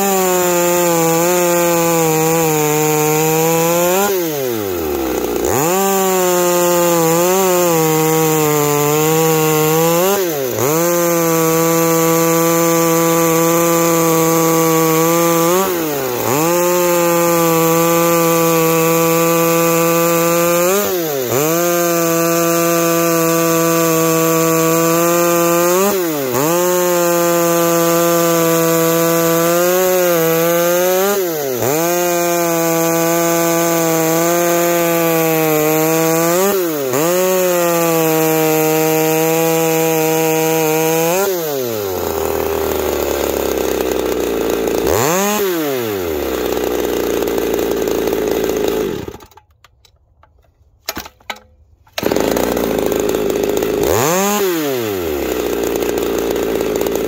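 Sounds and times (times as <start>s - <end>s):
chainsaw idling: 0.0s - 49.6s, 50.2s - 57.0s
chainsaw cutting log: 0.0s - 57.0s.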